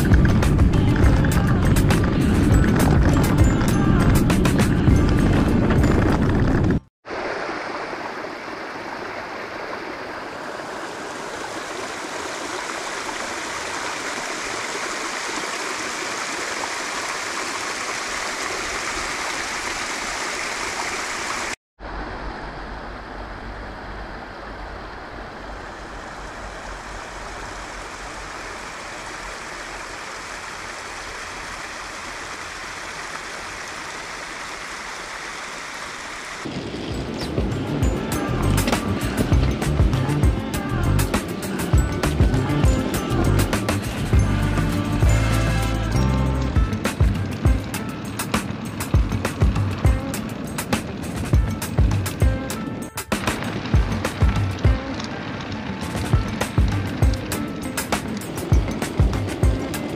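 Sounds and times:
deep rumble: 0.0s - 6.9s, 37.0s - 41.2s, 41.8s - 47.7s
stream water rushing: 7.0s - 59.9s.

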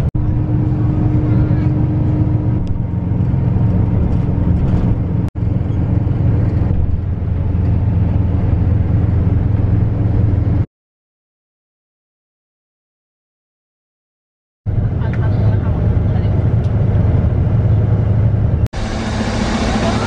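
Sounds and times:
bus engine and road noise: 0.0s - 10.7s, 14.7s - 20.0s.

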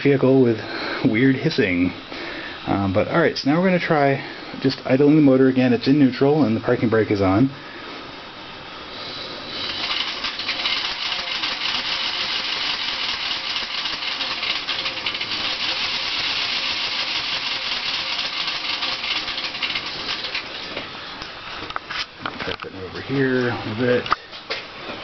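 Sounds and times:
electric motor rasping: 9.0s - 20.6s.

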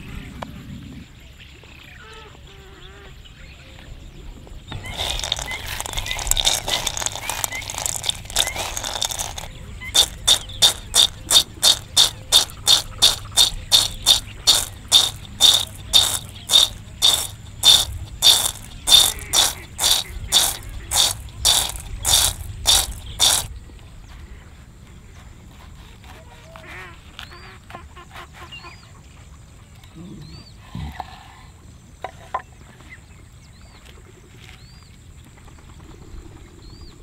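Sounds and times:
peanuts rattling in metal bowl: 4.8s - 23.5s
peanuts tossed clattering in bowl: 4.8s - 23.5s.

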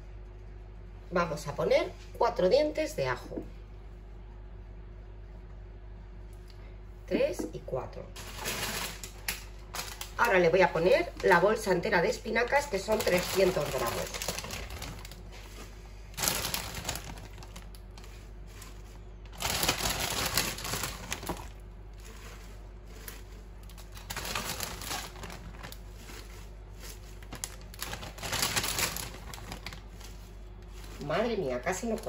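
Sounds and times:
plastic bag crinkling: 8.2s - 11.4s, 12.5s - 32.0s
spinach leaves rustling: 12.5s - 32.0s.

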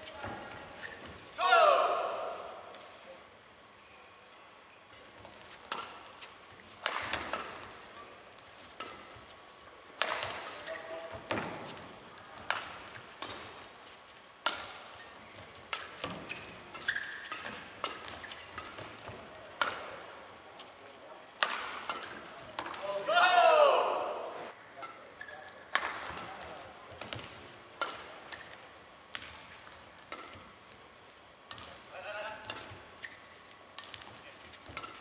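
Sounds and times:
rackets hitting shuttlecock: 4.9s - 8.2s, 10.0s - 13.6s, 14.4s - 20.1s, 21.4s - 24.2s, 24.8s - 30.6s, 31.5s - 35.0s.

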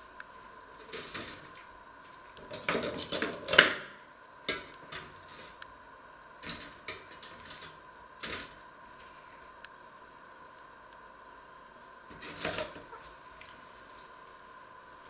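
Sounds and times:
pop-up toaster rattling and clicking: 6.4s - 8.6s.

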